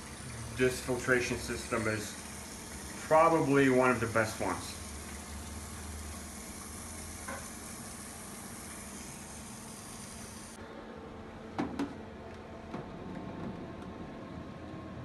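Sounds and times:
water filling plastic tank: 0:00.0 - 0:10.6.

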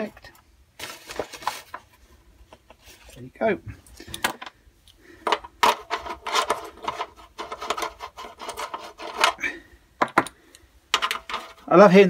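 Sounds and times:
scraping on metal parts: 0:05.1 - 0:09.6, 0:10.9 - 0:11.8.

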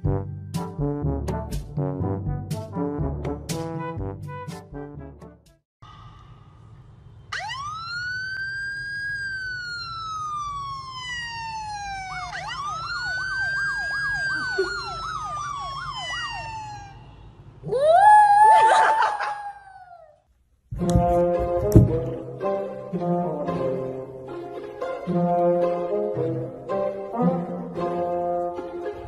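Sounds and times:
siren wailing: 0:07.3 - 0:20.0.

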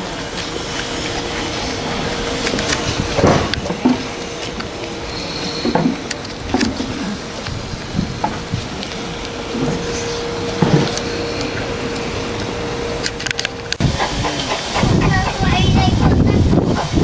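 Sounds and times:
steam locomotive rushing: 0:00.0 - 0:17.0
faint held tone: 0:09.0 - 0:13.8.

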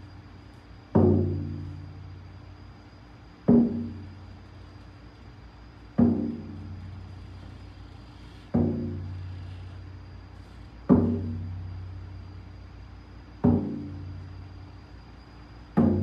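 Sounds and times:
frame drum beats: 0:03.5 - 0:04.1, 0:06.0 - 0:07.5, 0:08.3 - 0:09.6.

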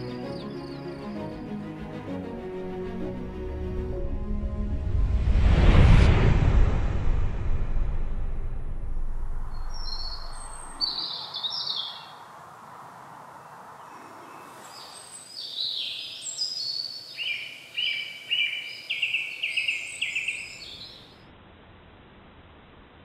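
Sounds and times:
songbirds singing: 0:00.0 - 0:01.5, 0:09.5 - 0:21.2
low rumble: 0:02.6 - 0:10.8.

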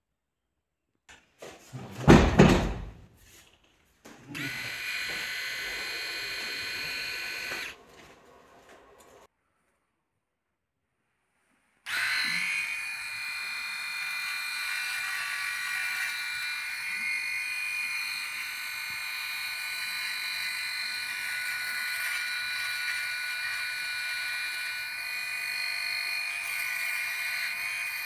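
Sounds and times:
electric shaver whining: 0:04.1 - 0:07.8, 0:11.9 - 0:28.0.

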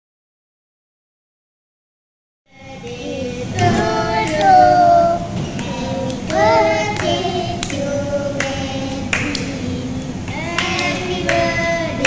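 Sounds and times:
voices singing together: 0:02.5 - 0:12.0
hand claps: 0:04.2 - 0:04.6, 0:05.5 - 0:07.8, 0:08.4 - 0:09.6, 0:10.3 - 0:11.6
toddler clapping: 0:10.3 - 0:11.5.

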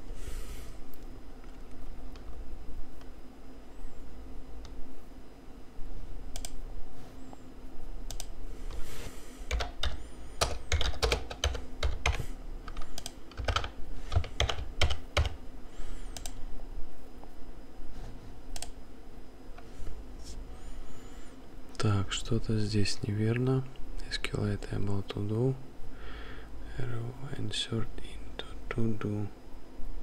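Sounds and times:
low steady hum: 0:00.0 - 0:30.0
keyboard typing clicks: 0:06.3 - 0:06.6, 0:08.1 - 0:08.4, 0:09.5 - 0:15.4, 0:16.2 - 0:16.4.

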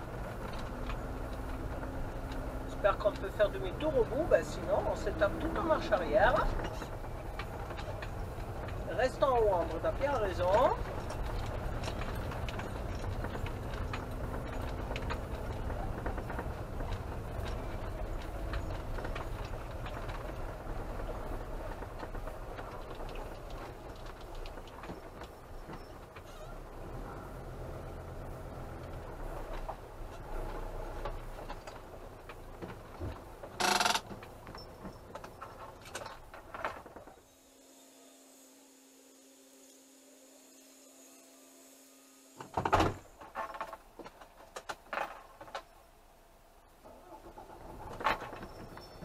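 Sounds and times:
gravel and fittings rattling: 0:00.0 - 0:26.8, 0:27.8 - 0:37.3, 0:43.0 - 0:45.8, 0:47.1 - 0:49.0
van engine running: 0:00.0 - 0:37.3.

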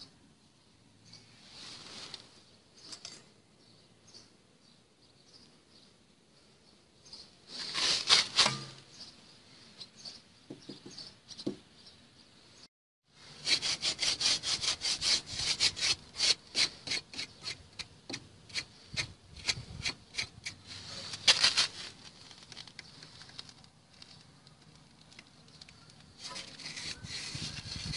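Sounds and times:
knife blade scraping: 0:07.6 - 0:08.8, 0:26.2 - 0:27.9.

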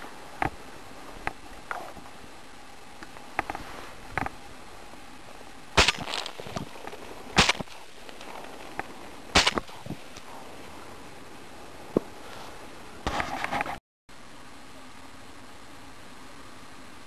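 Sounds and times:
sharp cracks: 0:05.7 - 0:10.4.

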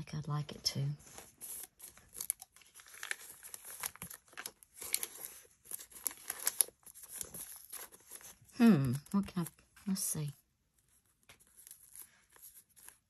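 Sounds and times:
paper rustling and scraping: 0:01.0 - 0:08.5, 0:10.8 - 0:13.0.

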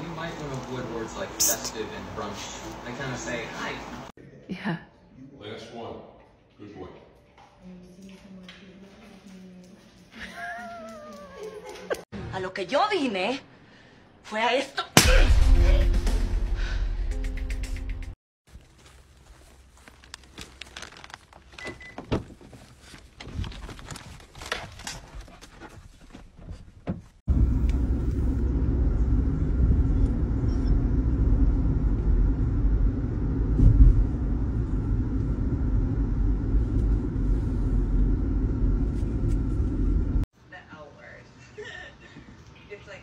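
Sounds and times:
car driving heard from inside: 0:27.3 - 0:40.2.

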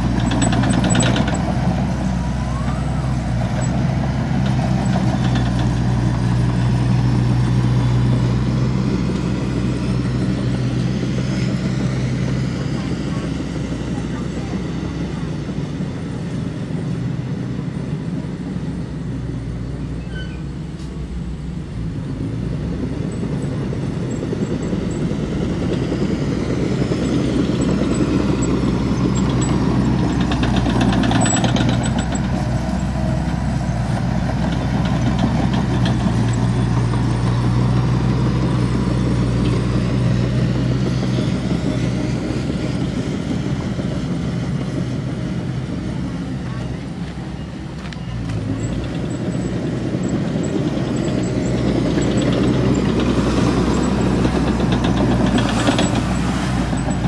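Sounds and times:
heavy diesel machine engine: 0:00.0 - 0:57.0.

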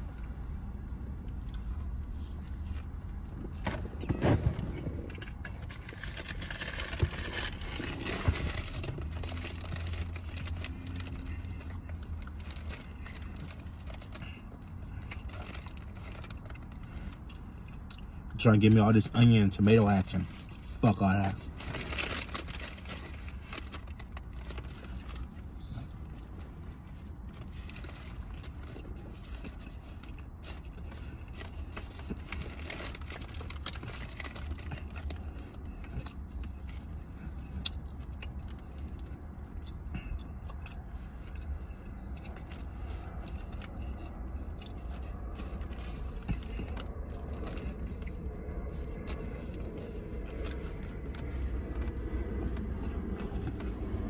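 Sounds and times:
low rumble: 0:00.0 - 0:17.5, 0:30.8 - 0:54.0
person chewing: 0:00.0 - 0:18.4, 0:21.4 - 0:54.0.

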